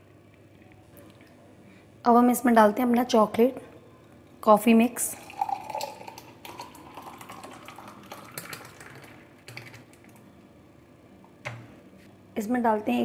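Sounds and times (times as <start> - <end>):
thick liquid pouring into glass: 5.1 - 9.9.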